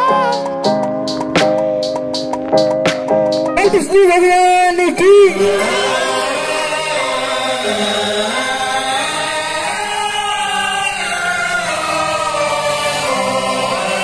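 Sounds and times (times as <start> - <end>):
many voices singing a hymn: 5.2 - 14.0.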